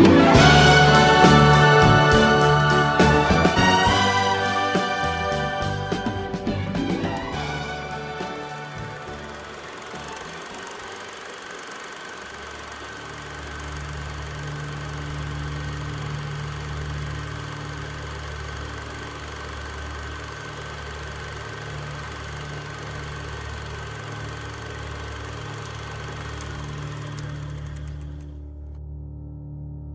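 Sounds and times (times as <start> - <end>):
steady low hum: 12.2 - 28.8.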